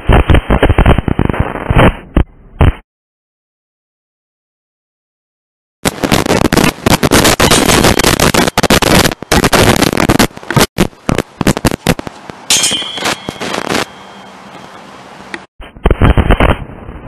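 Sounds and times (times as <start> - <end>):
loud dense crackling: 0.0 - 2.8, 5.8 - 14.3.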